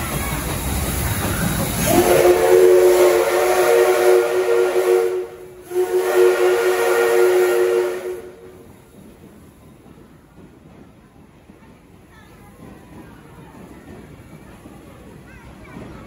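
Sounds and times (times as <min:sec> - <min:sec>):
steam rushing: 0:00.0 - 0:16.0
steam locomotive whistle: 0:01.8 - 0:08.6.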